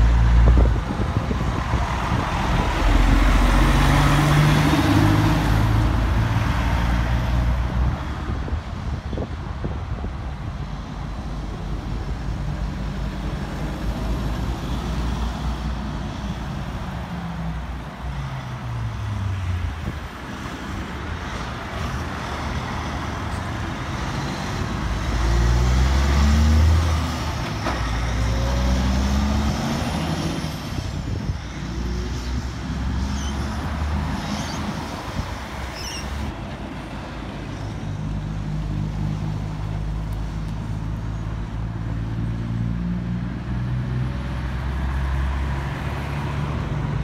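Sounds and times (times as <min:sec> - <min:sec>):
truck diesel engine passing: 0:00.0 - 0:07.7, 0:20.8 - 0:47.0
road traffic hiss: 0:00.0 - 0:42.4.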